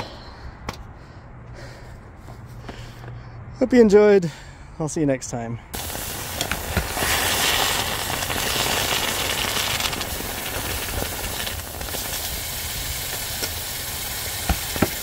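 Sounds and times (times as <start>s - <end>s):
hot metal hissing in water: 5.8s - 15.0s.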